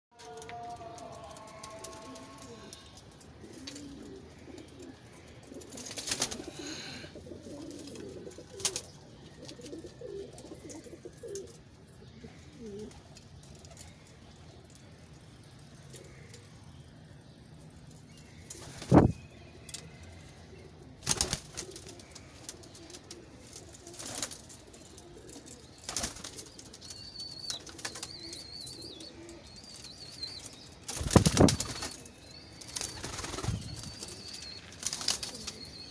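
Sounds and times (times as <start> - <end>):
pigeons cooing: 0.2 - 13.1, 20.5 - 32.2, 32.8 - 35.9.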